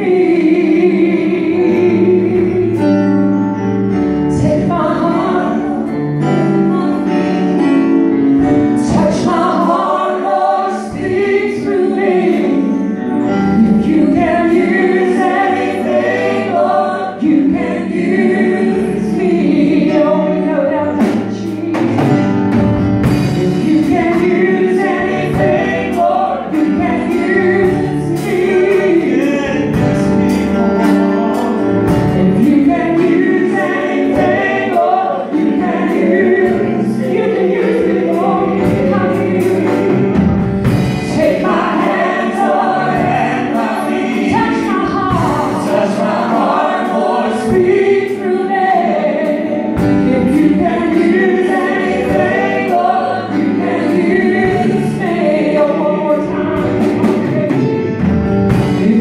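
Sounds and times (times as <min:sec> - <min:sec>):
women and man singing: 0:13.6 - 0:22.2, 0:23.4 - 0:30.2, 0:30.8 - 0:40.1, 0:41.1 - 0:57.8, 0:58.7 - 0:59.0
band with drums: 0:21.0 - 0:48.5, 0:49.3 - 0:59.0.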